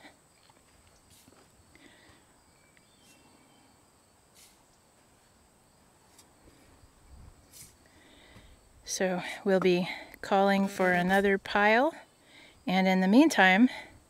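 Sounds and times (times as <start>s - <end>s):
high insect buzz: 0.1s - 9.0s.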